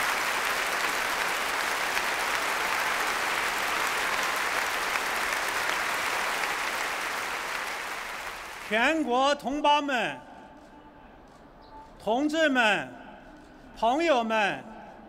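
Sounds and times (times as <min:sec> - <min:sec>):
crowd applauding: 0:00.0 - 0:08.8.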